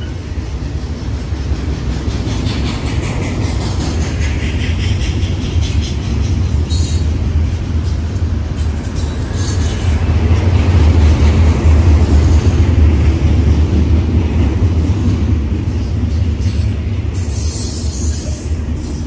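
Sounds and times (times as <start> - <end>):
freight train rolling past: 0.0 - 19.0.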